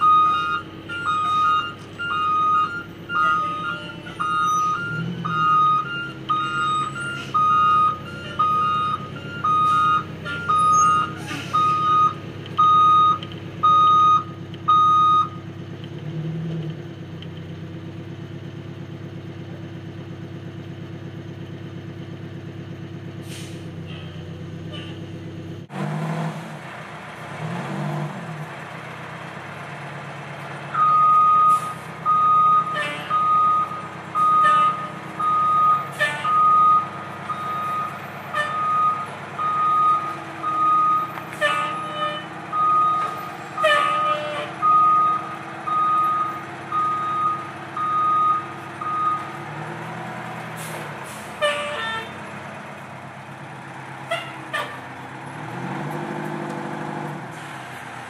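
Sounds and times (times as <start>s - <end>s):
reversing alarm beeping: 0.0s - 15.4s, 30.8s - 49.4s
truck engine idling: 0.0s - 25.7s, 28.3s - 58.0s.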